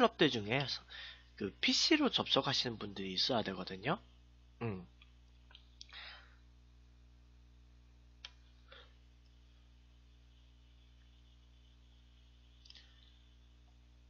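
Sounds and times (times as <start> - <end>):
low electrical hum: 0.0 - 14.0
brief vocal sound: 4.6 - 4.9
short breaths: 5.9 - 6.4.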